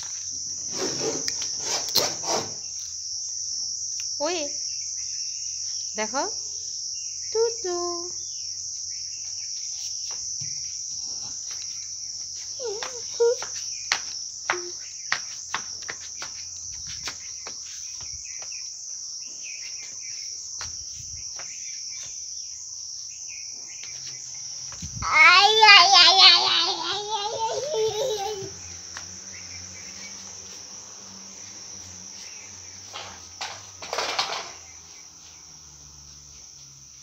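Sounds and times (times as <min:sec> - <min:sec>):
high-pitched insect chorus: 0:00.0 - 0:37.0
child crying out: 0:25.0 - 0:28.6.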